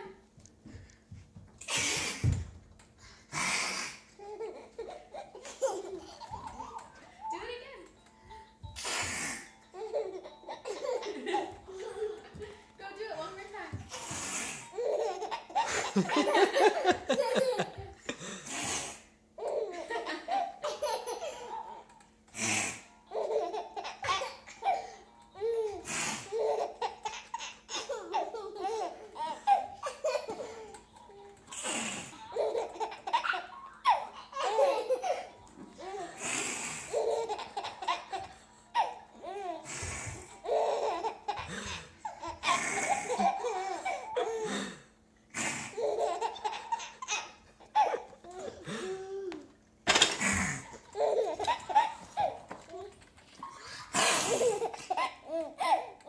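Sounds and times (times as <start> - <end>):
breathy hissing bursts: 1.6 - 2.4, 3.2 - 4.2, 8.8 - 9.6, 13.9 - 14.7, 18.3 - 19.2, 22.3 - 22.9, 25.8 - 26.4, 31.5 - 32.3, 36.2 - 37.1, 44.5 - 45.8
baby laughing and giggling: 4.2 - 7.6, 9.7 - 12.6, 13.9 - 18.0, 19.4 - 22.0, 22.6 - 44.6, 45.6 - 56.0.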